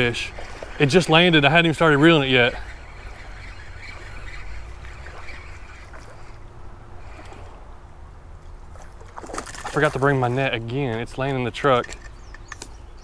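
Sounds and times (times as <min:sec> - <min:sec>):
fish thrashing and splashing: 0:00.0 - 0:07.7, 0:08.5 - 0:10.4.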